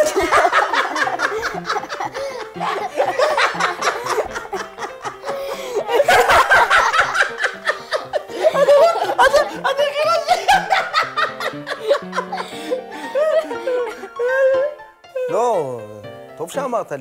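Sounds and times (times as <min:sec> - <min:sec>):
man and children laughing: 0:00.0 - 0:14.7
light background music: 0:00.0 - 0:17.0.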